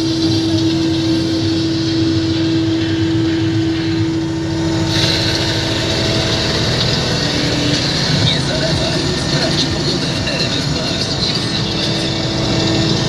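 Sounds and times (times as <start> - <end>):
tractor engine droning: 0.0 - 13.0
sprayer hiss: 4.8 - 13.0.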